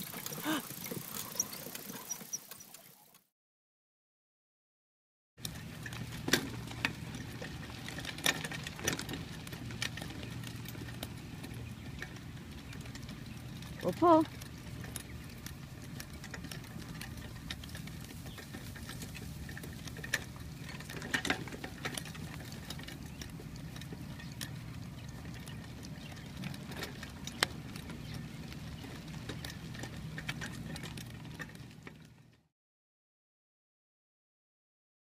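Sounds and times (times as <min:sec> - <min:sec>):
cart rumbling over grass and dirt: 0:00.0 - 0:03.2, 0:05.4 - 0:32.5
light clicks and pattering: 0:05.4 - 0:32.3.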